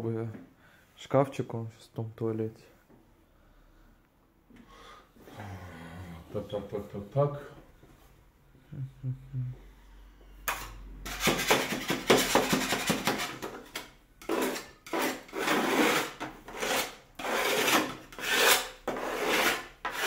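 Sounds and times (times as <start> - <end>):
hand scraping wall: 11.0 - 20.0.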